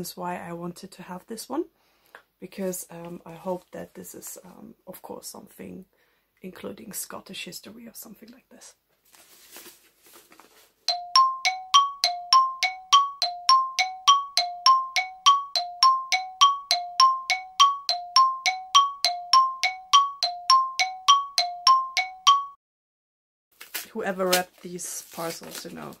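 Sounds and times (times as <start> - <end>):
two-note bell-like chime: 10.9 - 22.6.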